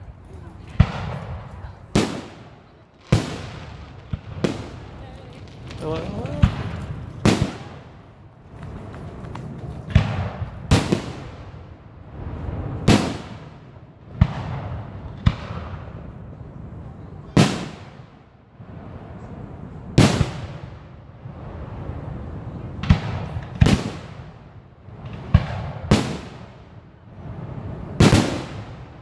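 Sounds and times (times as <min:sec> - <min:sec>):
firework shells booming: 0:00.8 - 0:11.8, 0:12.6 - 0:16.2, 0:19.9 - 0:21.0, 0:22.7 - 0:26.8, 0:27.9 - 0:29.0.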